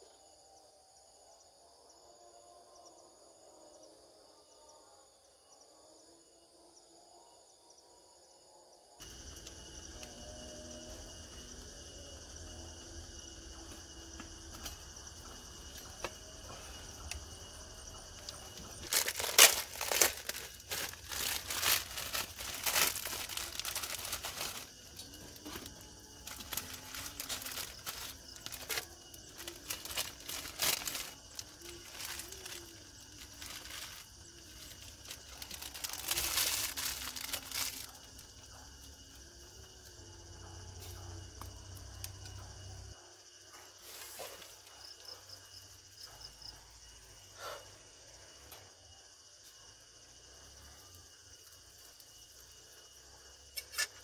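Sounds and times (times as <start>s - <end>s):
crickets chirring: 0.0s - 54.0s
plastic packaging crinkling: 18.8s - 38.0s.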